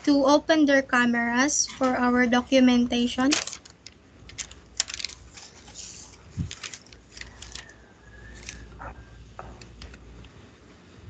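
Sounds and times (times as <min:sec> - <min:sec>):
handling rustles: 0:03.1 - 0:10.1.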